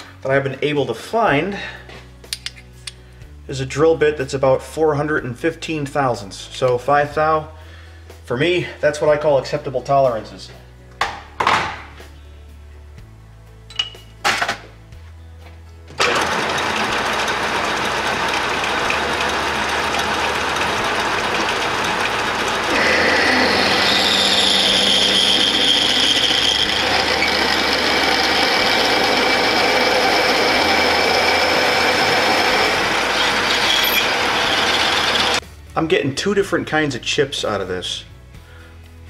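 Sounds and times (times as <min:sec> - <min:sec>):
drill cutting metal whine: 0:16.0 - 0:35.4
metal lathe running: 0:16.0 - 0:35.4.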